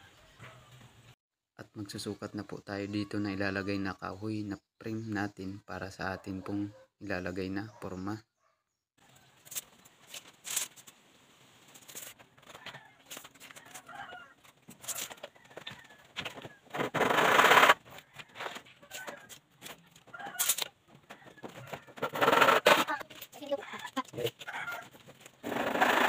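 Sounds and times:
wooden planks knocking and scraping: 0:11.8 - 0:26.0.

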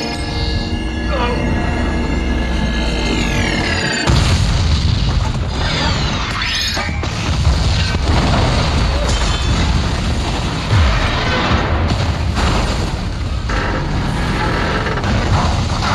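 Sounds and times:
explosions booming: 0:03.7 - 0:15.9
debris crashing: 0:04.0 - 0:15.9.

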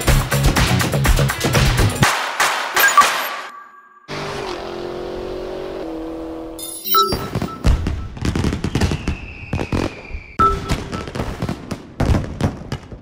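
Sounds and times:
falling whistle: 0:06.8 - 0:11.1
fireworks bursting and crackling: 0:07.7 - 0:13.0.

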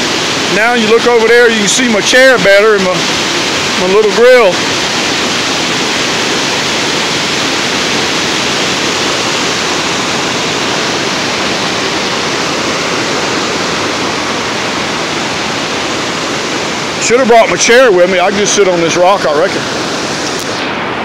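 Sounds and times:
river rushing over rocks: 0:00.0 - 0:21.0.

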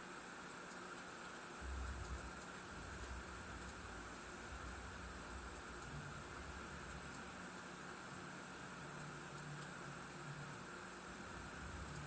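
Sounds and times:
computer cooling fans hissing: 0:00.0 - 0:12.0
faint low hum: 0:00.0 - 0:12.0.

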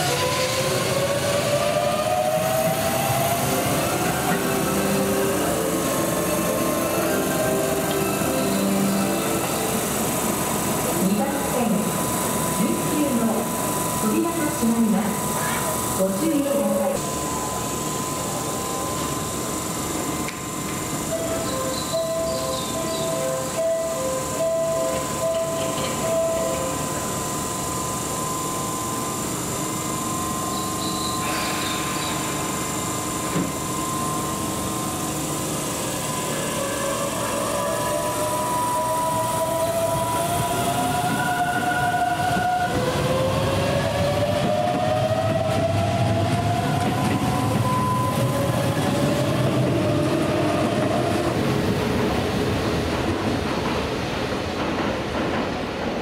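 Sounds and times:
electric train motor whine: 0:00.0 - 0:52.6
wheels rumbling on rail: 0:00.0 - 0:56.0.

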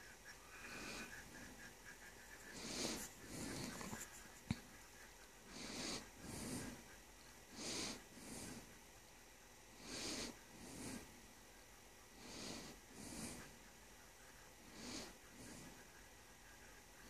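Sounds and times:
person breathing heavily through nose: 0:09.7 - 0:11.1, 0:12.2 - 0:13.5.

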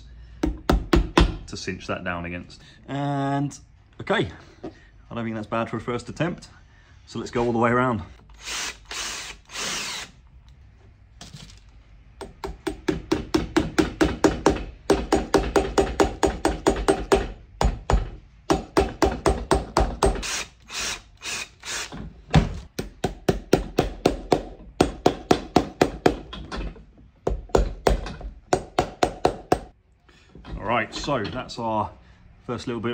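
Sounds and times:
cordless drill boring: 0:08.2 - 0:10.3, 0:20.2 - 0:22.0.

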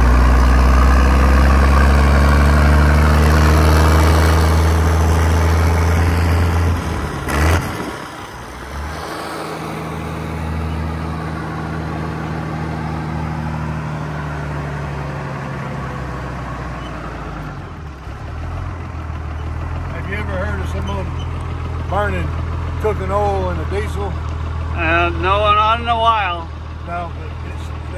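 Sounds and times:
diesel truck engine running: 0:00.0 - 0:27.9
wind and road noise: 0:00.0 - 0:27.9.

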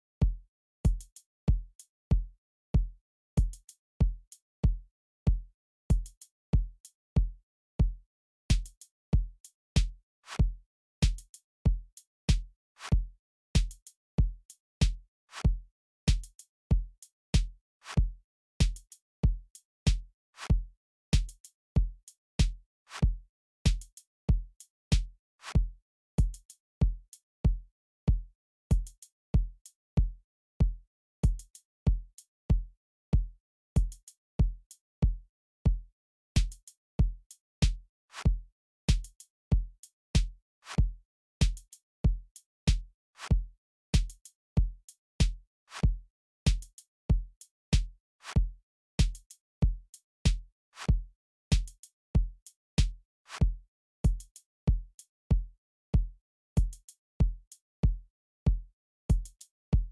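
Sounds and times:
drum machine beat: 0:38.9 - 0:39.1, 0:46.5 - 0:46.7, 0:49.0 - 0:50.4, 0:51.5 - 0:51.8, 0:56.6 - 0:56.8, 0:59.1 - 0:59.9.

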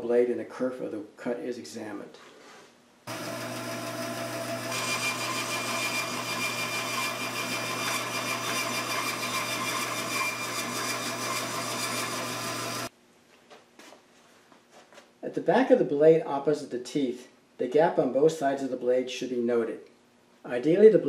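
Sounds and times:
bandsaw blade cutting wood: 0:03.1 - 0:12.9
bandsaw motor hum: 0:03.1 - 0:12.9.

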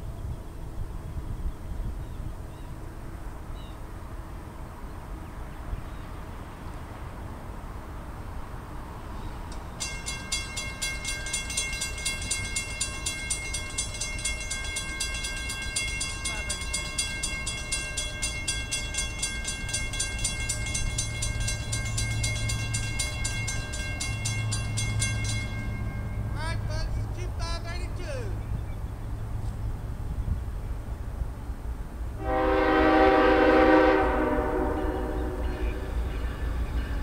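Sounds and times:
locomotive rumble: 0:00.0 - 0:37.0
crossing warning bell ringing: 0:09.6 - 0:28.0, 0:32.2 - 0:37.0.

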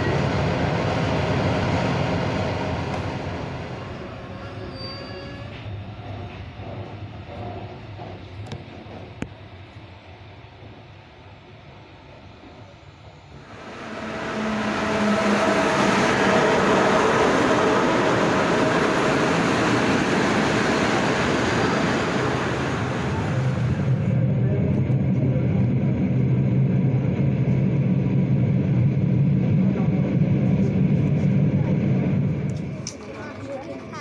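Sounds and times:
passenger train humming: 0:00.0 - 0:34.0
wheels rushing on rails: 0:12.4 - 0:34.0.

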